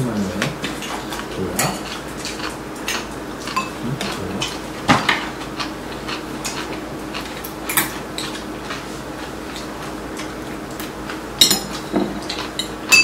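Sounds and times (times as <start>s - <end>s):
utensils clinking against bowls: 0.4s - 5.7s, 7.4s - 8.4s, 11.4s - 13.0s.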